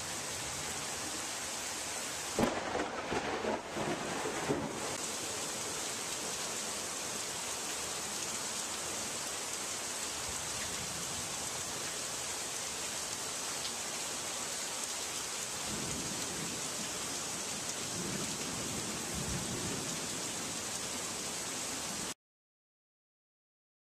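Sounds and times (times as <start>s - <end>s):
heavy rain pouring: 0.0s - 22.2s
distant thunder rumbling: 2.4s - 5.0s.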